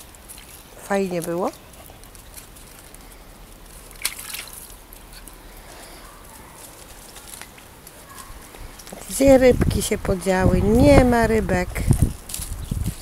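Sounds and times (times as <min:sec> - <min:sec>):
water sloshing: 0:00.0 - 0:05.4
dog splashing into pond: 0:03.8 - 0:04.9.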